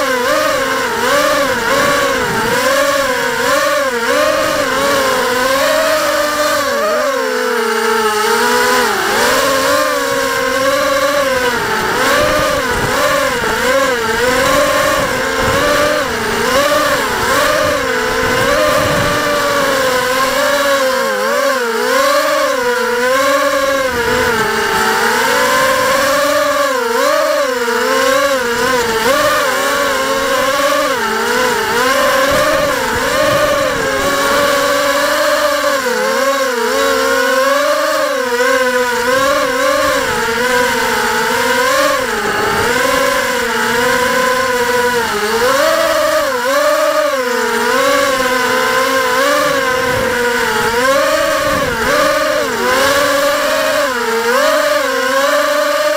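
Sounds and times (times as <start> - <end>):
drone motors whining: 0.0 - 55.9.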